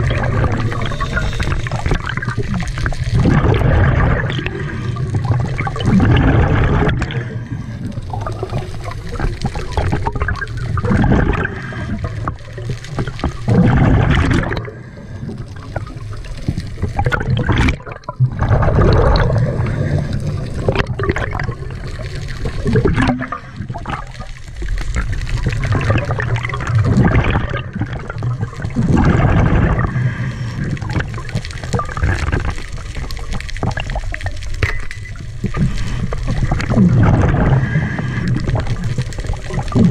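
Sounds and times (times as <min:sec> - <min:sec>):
exhaled bubbles rushing: 0:00.0 - 0:39.9
diver breathing through regulator: 0:07.0 - 0:08.4, 0:14.4 - 0:15.9, 0:19.2 - 0:20.7, 0:29.4 - 0:30.9, 0:37.2 - 0:38.8.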